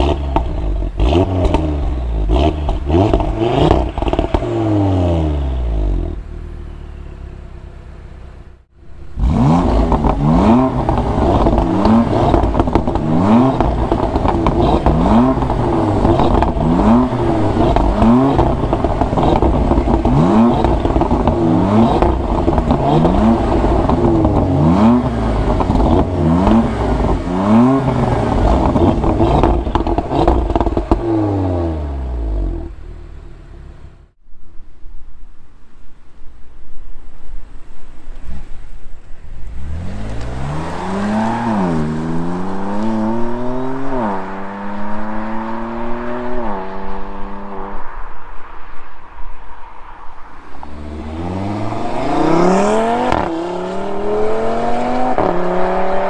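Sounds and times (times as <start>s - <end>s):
sports car engine revving: 0.0s - 34.2s, 39.3s - 47.8s, 50.5s - 56.0s.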